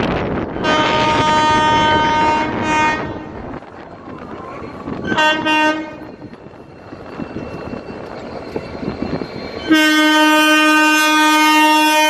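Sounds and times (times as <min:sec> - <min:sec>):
locomotive horn blasts: 0:00.6 - 0:03.3, 0:05.1 - 0:06.1, 0:09.7 - 0:12.0.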